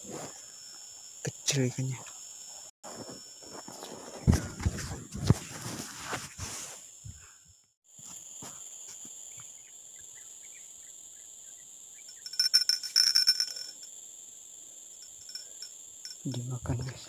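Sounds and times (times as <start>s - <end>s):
insects buzzing: 0.0s - 17.0s
sharp clicks and ringing clinks: 12.1s - 13.9s, 14.9s - 16.6s.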